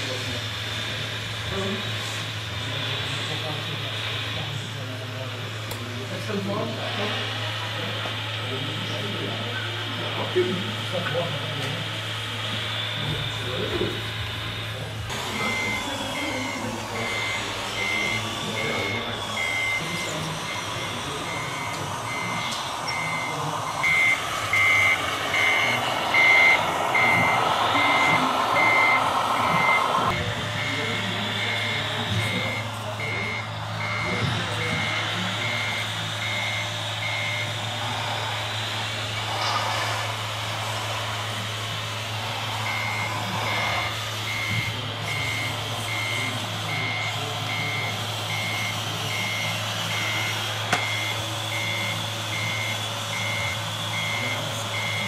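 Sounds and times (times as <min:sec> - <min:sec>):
running noise: 0:12.3 - 0:46.6
steady low hum: 0:13.0 - 0:50.3
short high reversing beeps: 0:15.3 - 0:37.6, 0:42.6 - 0:55.0.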